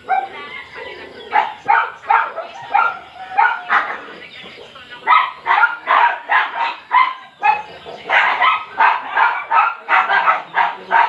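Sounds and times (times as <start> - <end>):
dog barking: 0.0 - 0.7, 1.3 - 4.2, 5.0 - 11.0.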